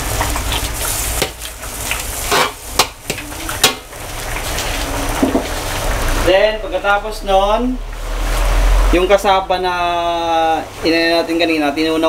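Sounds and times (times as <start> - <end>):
broth sizzling in wok: 0.0 - 6.3, 7.1 - 9.0.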